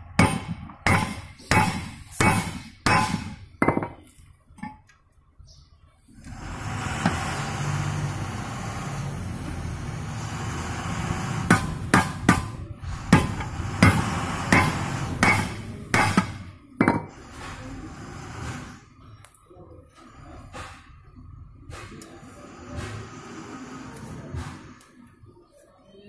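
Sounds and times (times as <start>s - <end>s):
hammer striking steel punch: 0.2s - 4.0s, 11.5s - 17.1s
steady noise: 6.2s - 19.0s.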